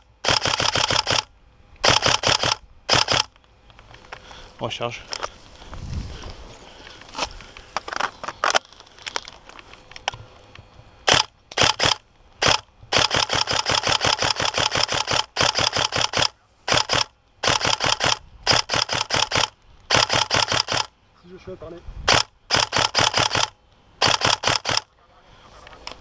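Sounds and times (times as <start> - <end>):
airsoft rifle firing full-auto: 0.0 - 3.3, 11.0 - 20.9, 22.1 - 24.9
scattered clicks: 0.0 - 4.2, 7.5 - 20.9, 22.1 - 24.9.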